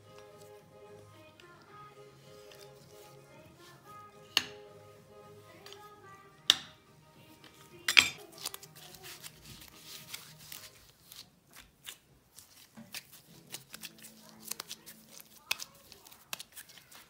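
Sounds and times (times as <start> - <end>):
background music: 0.0 - 11.6, 12.9 - 16.5.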